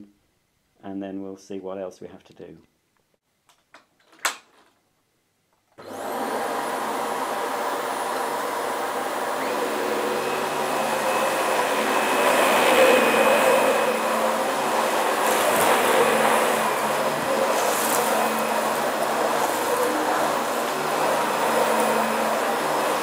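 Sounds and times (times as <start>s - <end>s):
vacuum cleaner motor whine: 5.8s - 23.0s.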